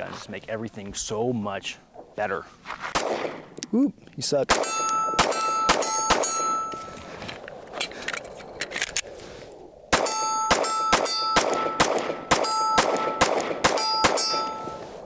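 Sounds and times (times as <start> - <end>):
pistol shots: 2.9 - 3.5, 4.5 - 6.8, 9.9 - 14.7
steel target plate ringing: 4.6 - 7.0, 10.0 - 14.9.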